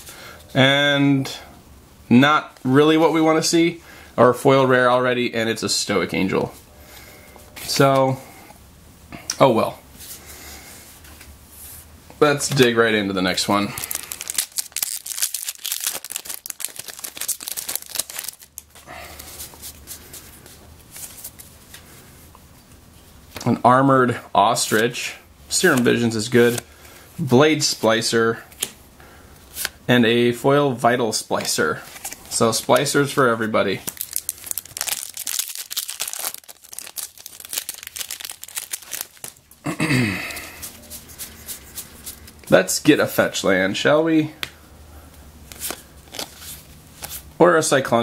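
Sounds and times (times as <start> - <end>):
handling of cards: 13.5 - 21.9, 31.3 - 39.6, 45.4 - 47.3
foil wrapper crinkling: 13.6 - 19.4, 33.8 - 39.5.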